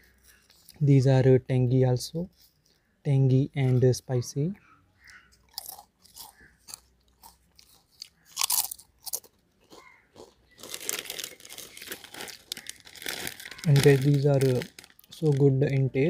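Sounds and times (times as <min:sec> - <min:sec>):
potato chips being chewed: 0:05.4 - 0:15.8
plastic packet crinkling: 0:07.6 - 0:16.0.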